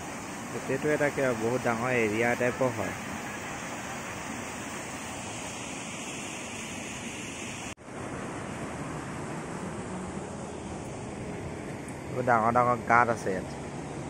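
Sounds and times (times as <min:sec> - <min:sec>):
stream rushing through rocks: 0:00.0 - 0:07.8.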